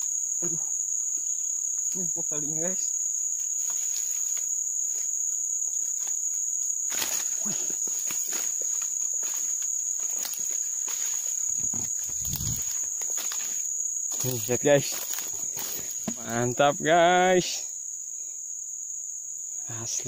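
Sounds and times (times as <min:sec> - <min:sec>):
shrill insects droning: 0:00.0 - 0:20.0
dry reeds and grass rustling: 0:02.6 - 0:16.6.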